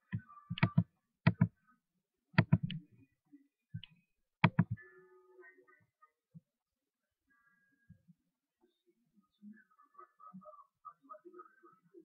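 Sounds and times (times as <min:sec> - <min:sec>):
mouse button clicks: 0:00.1 - 0:01.5, 0:02.4 - 0:02.8, 0:03.8 - 0:04.8.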